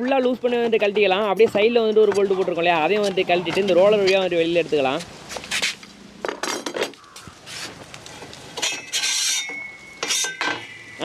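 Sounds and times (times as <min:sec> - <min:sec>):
steel rod clinking and scraping: 0:07.6 - 0:11.0
ringing metal scrape: 0:08.6 - 0:11.0.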